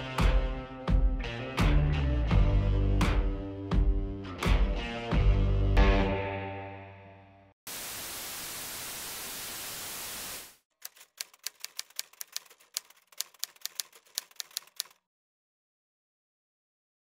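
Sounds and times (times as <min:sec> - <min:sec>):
tv static hiss: 0:07.7 - 0:10.6
typewriter keys clacking: 0:10.8 - 0:15.0.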